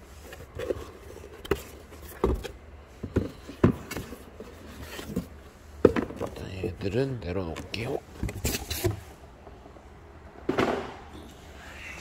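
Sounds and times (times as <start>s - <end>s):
cardboard rustling and scraping: 0.0s - 9.2s.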